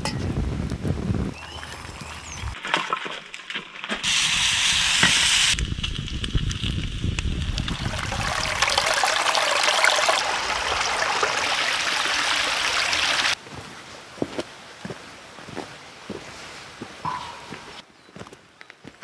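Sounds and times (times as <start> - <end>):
campfire burning: 4.0 - 9.5
food sizzling in a pan: 4.1 - 5.6
stream running over rocks: 7.2 - 13.4.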